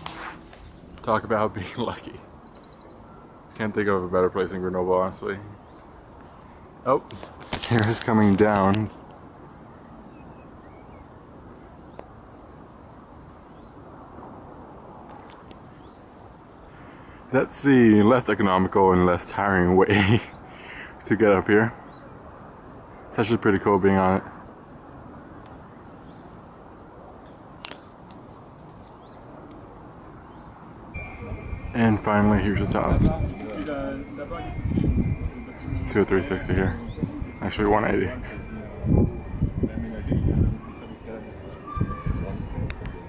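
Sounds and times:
wind hiss: 0.0 - 18.4, 21.9 - 43.0
distant city noise: 0.0 - 43.0
faint bird chirps: 2.3 - 3.7, 30.2 - 43.0.

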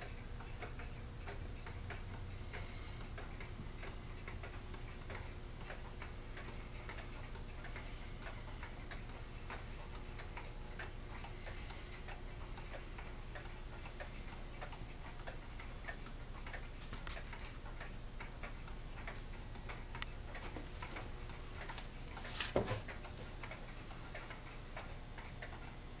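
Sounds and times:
low steady hum: 0.0 - 26.0
pendulum clocks ticking: 0.0 - 26.0.

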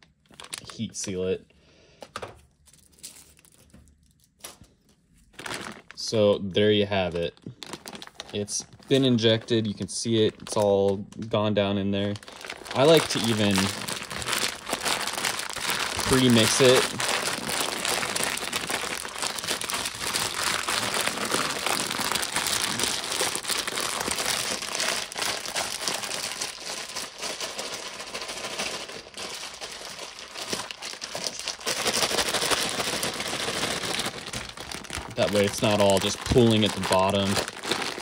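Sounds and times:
plastic bag crinkling: 0.0 - 1.4, 2.5 - 38.0
grain rustling in bag: 12.1 - 38.0.

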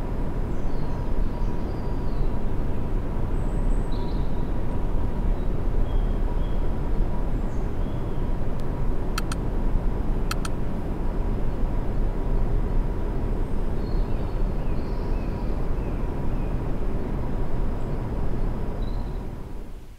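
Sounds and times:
jet engines idling: 8.4 - 10.6
quick double clicks: 9.2 - 9.4, 10.3 - 10.6.

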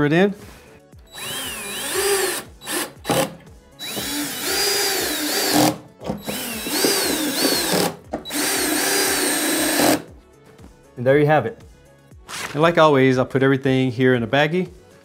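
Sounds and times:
power drill driving screws: 1.1 - 10.1.

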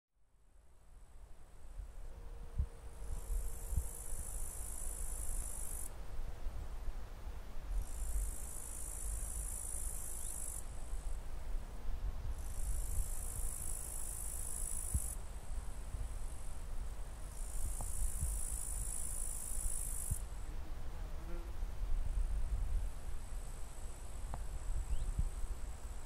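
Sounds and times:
shrill insect buzz: 3.0 - 5.9, 7.8 - 10.7, 17.3 - 21.6.

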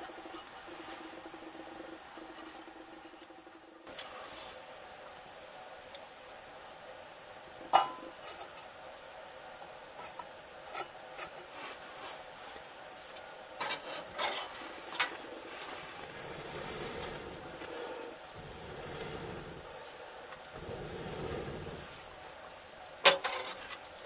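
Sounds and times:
wood fire being tended: 9.9 - 24.0.

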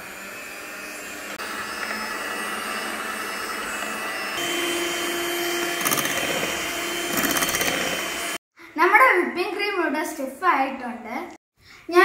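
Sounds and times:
electric hand mixer whirring: 0.0 - 8.4.

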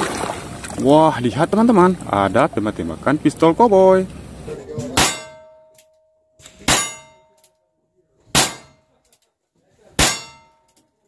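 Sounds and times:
steel target ringing clang: 5.0 - 7.5, 8.4 - 8.9, 10.0 - 10.8.

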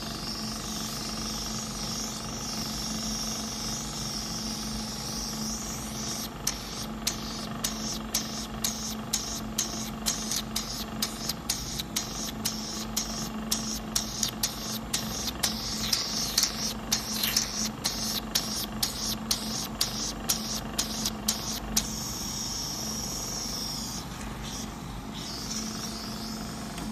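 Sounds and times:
facial machine humming: 0.0 - 26.9
air hissing from handpiece: 5.0 - 26.3.

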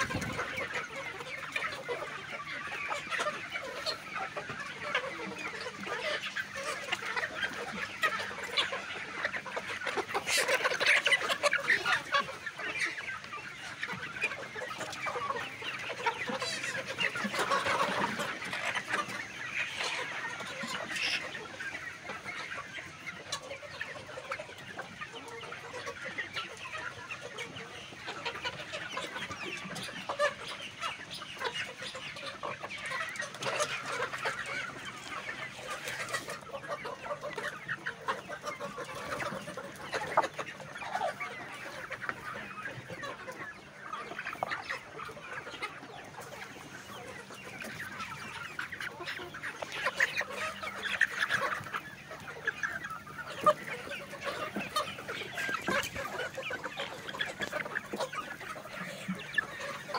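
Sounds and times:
chickens clucking: 0.0 - 59.9.

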